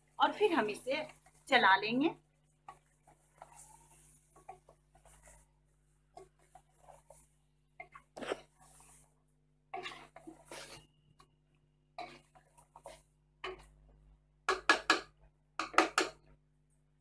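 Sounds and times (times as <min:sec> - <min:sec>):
spatula scraping a pot: 0:02.3 - 0:13.8.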